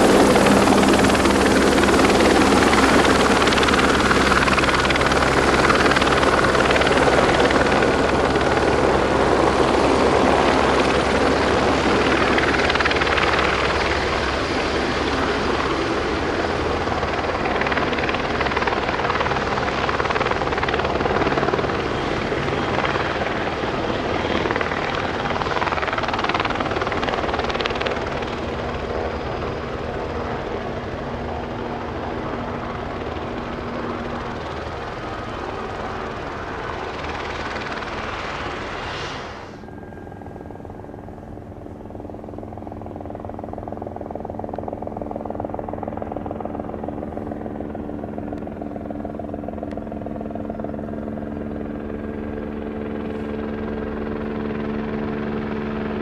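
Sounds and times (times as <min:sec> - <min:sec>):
helicopter turbine and rotor noise: 0:00.0 - 0:56.0.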